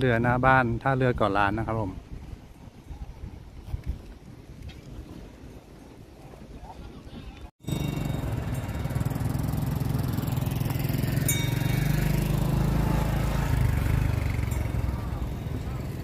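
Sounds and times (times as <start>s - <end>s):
small engine droning: 7.6s - 16.0s.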